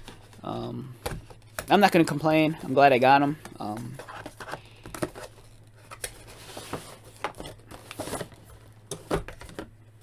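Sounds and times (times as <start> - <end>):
cardboard box rustling: 3.8 - 8.4.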